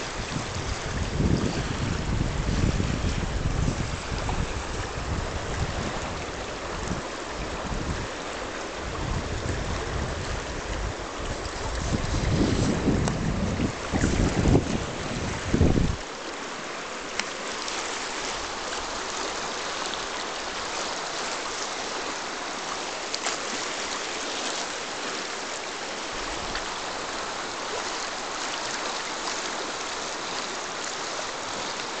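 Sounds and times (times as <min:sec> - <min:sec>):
wind buffeting microphone: 0:00.0 - 0:16.0
river water running over stones: 0:00.0 - 0:32.0.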